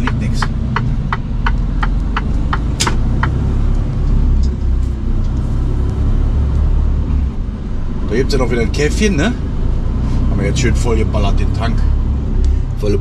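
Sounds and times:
turn signal clicking: 0.0s - 6.7s
truck diesel engine running: 0.0s - 13.0s.

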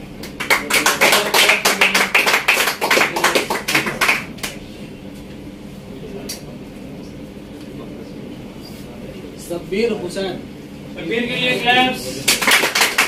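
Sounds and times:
people clapping: 0.2s - 4.6s, 12.0s - 13.0s.

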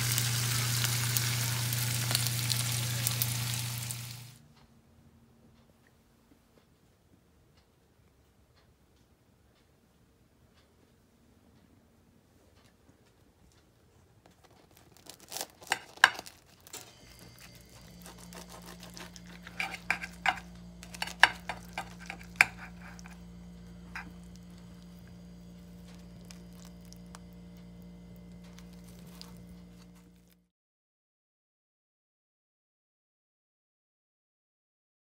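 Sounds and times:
low electrical hum: 0.0s - 30.5s
dishes and utensils clicking: 18.9s - 23.2s.

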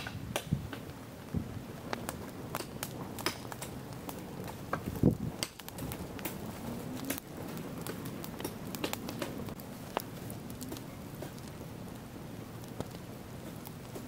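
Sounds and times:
dry grass crackling in fire: 0.0s - 14.0s.

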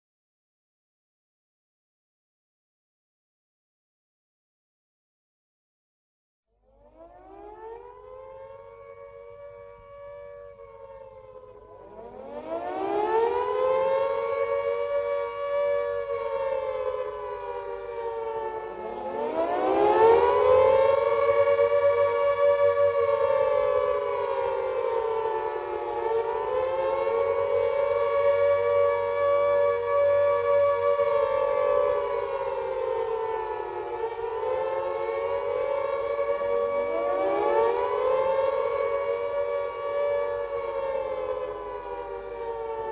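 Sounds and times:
air raid sirens wailing: 6.7s - 42.9s.

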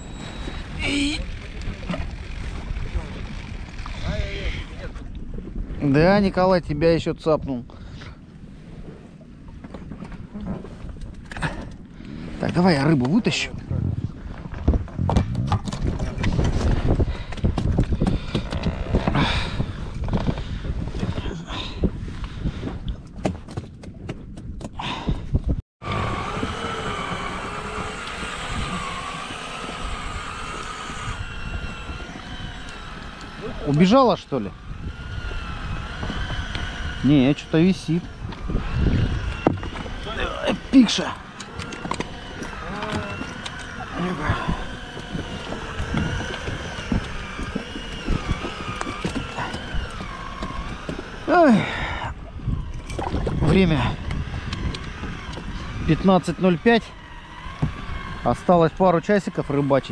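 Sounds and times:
faint wavering whine: 0.0s - 4.1s, 25.9s - 59.9s
choppy water: 0.0s - 59.9s
wind buffeting: 0.0s - 59.9s
wind rushing: 25.1s - 50.9s.

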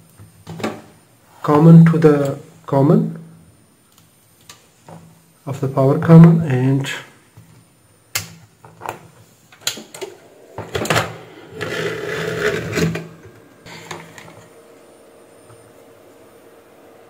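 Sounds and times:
rustling and scraping: 8.8s - 14.6s.

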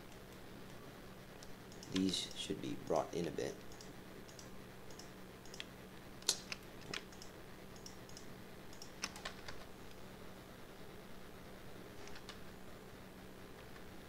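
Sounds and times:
faint steady hum: 0.0s - 14.0s
computer keyboard clicks: 3.7s - 9.6s.

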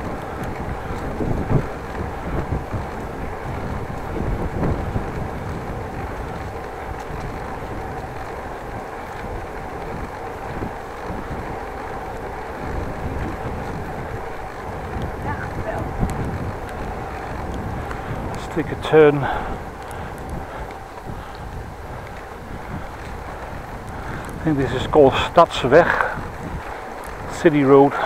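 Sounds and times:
tyres rumbling on pavement: 0.0s - 28.0s
wind buffeting microphone: 0.0s - 28.0s.

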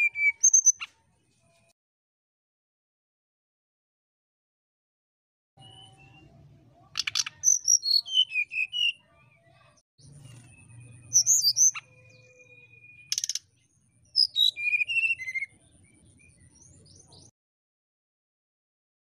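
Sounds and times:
bird whistling song: 0.0s - 0.9s, 5.6s - 6.4s, 7.0s - 9.1s, 10.0s - 17.1s.

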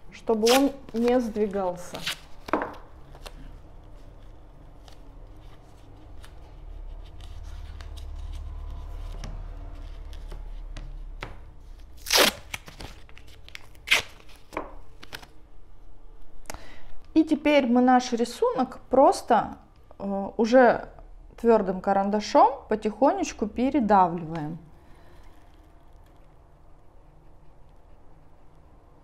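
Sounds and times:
masking tape tearing: 0.4s - 1.0s, 12.0s - 14.4s
paper rustling: 0.4s - 11.0s, 11.7s - 15.4s.

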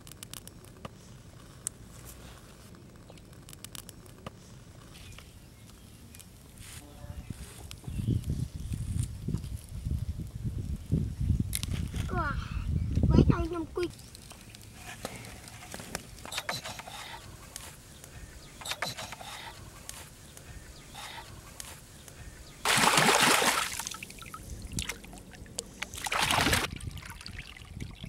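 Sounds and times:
loud splash bursts: 22.6s - 25.0s, 25.9s - 26.7s
hands splashing in muddy water: 22.6s - 25.1s, 25.8s - 27.5s.

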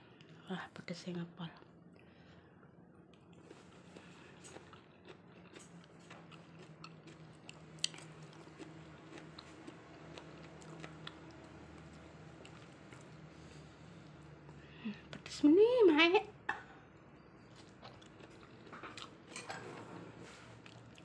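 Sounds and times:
faint low hum: 0.0s - 21.0s
person chewing food: 1.9s - 14.6s, 17.4s - 19.4s, 20.4s - 21.0s.

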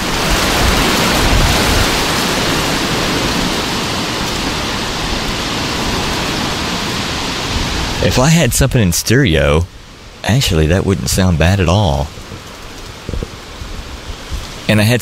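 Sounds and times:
gusty wind on microphone: 0.0s - 8.8s, 12.1s - 14.7s.

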